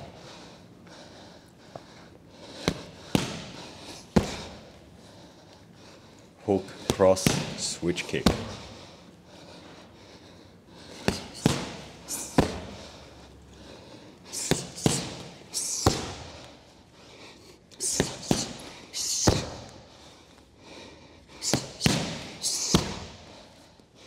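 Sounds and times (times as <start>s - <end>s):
punches smacking pads: 2.6s - 4.6s, 6.9s - 8.7s, 11.0s - 12.8s, 14.4s - 16.4s, 17.8s - 18.6s, 19.2s - 19.7s, 21.4s - 23.2s
kick smacking pads: 11.0s - 12.8s, 14.4s - 16.3s.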